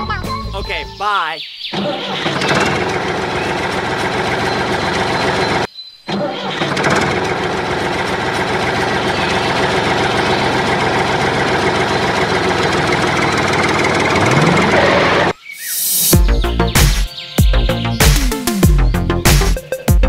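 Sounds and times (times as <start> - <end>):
small tractor engine rattling: 1.8 - 15.3.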